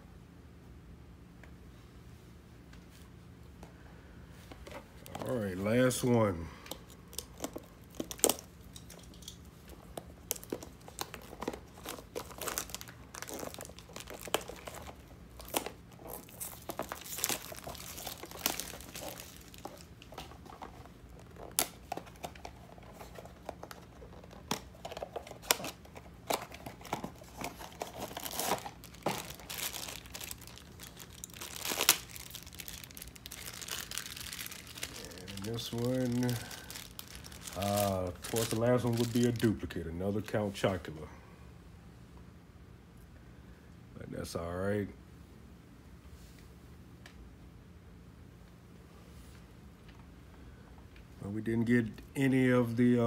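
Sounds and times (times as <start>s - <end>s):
foil bag crinkling: 5.0s - 40.7s
packaging being torn open: 7.1s - 8.5s, 9.9s - 39.6s.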